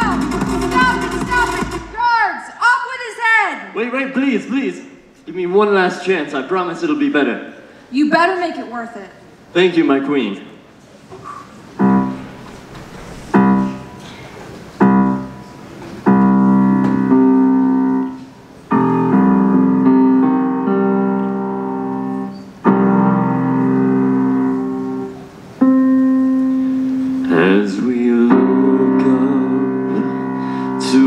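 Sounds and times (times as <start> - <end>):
keyboard playing piano chords: 0.0 - 1.9, 11.7 - 31.0.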